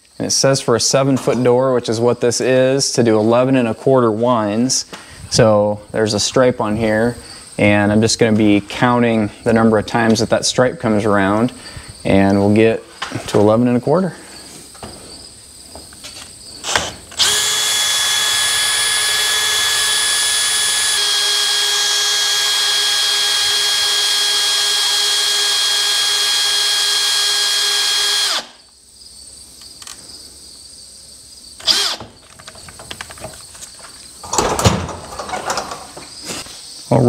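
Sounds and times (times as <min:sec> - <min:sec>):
cordless drill whining: 0:16.6 - 0:28.6, 0:31.6 - 0:32.2.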